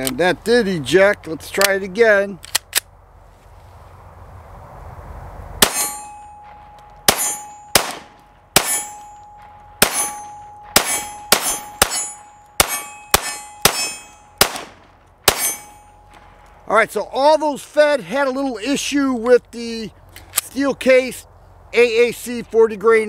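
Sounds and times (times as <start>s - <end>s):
pistol shots: 5.6s - 9.2s, 9.8s - 15.8s
steel target ringing: 5.6s - 16.2s.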